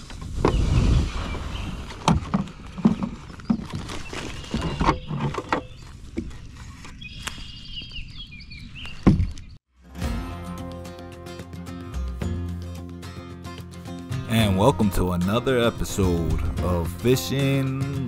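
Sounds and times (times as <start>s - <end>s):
birds chirping: 0.4s - 9.6s.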